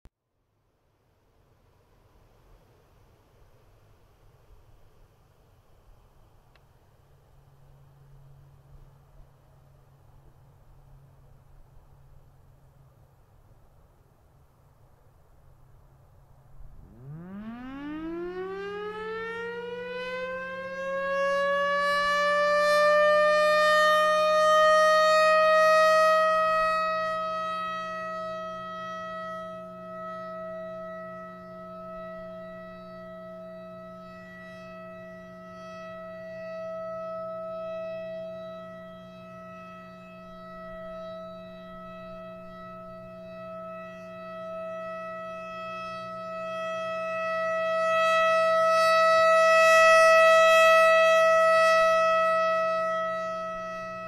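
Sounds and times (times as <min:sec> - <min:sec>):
rotating warning siren: 0:16.6 - 0:54.0.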